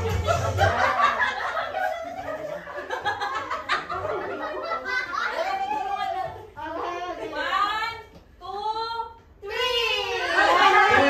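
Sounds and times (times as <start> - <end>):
group of people laughing: 0.0 - 7.4.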